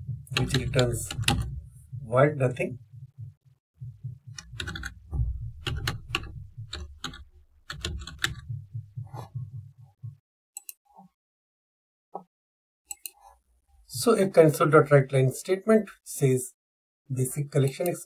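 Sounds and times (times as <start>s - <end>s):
keyboard typing: 0.3s - 1.6s, 4.2s - 9.5s.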